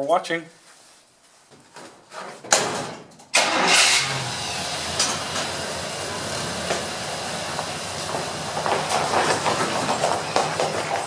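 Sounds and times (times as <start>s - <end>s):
truck engine running: 3.4s - 11.0s
tire chains clanking: 4.8s - 11.0s.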